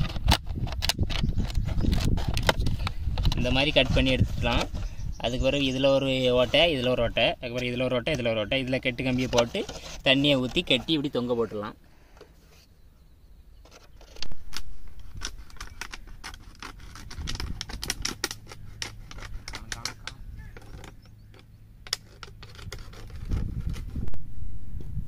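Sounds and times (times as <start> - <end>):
scissors cutting plastic bottle: 0.0 - 4.8, 14.0 - 21.0, 21.8 - 24.0.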